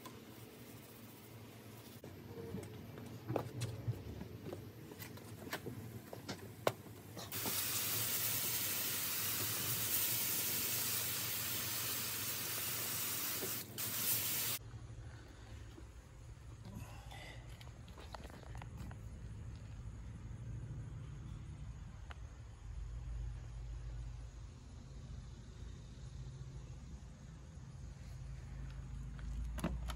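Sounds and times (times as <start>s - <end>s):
hose water spray hissing: 7.2s - 14.6s.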